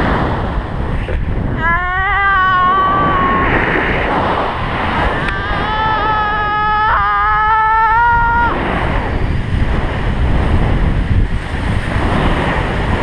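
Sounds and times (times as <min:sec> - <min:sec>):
wind blowing over microphone: 0:00.0 - 0:13.0
person yelling: 0:01.5 - 0:03.6, 0:05.2 - 0:08.6.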